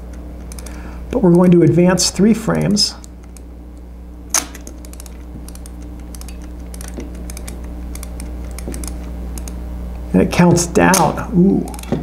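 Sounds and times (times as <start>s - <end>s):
low hum: 0.0s - 12.0s
camera ratcheting clicks: 4.3s - 9.6s
sharp camera click: 4.3s - 9.6s.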